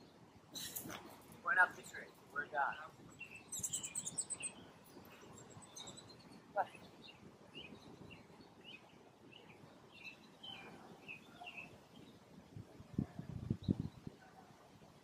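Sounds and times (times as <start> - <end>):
high bird chirps: 2.8 - 6.8.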